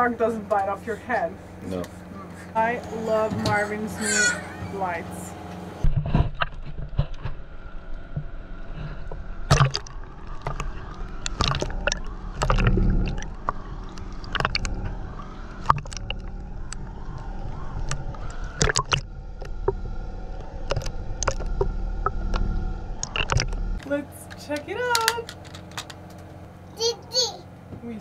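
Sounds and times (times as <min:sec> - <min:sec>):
underwater gurgling and sloshing: 0:05.8 - 0:23.8.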